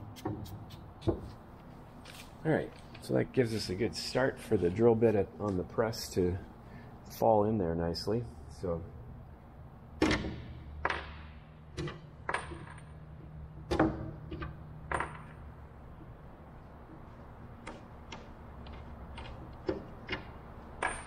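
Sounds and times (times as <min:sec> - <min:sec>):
tools clicking and knocking on wood: 0:10.0 - 0:21.0.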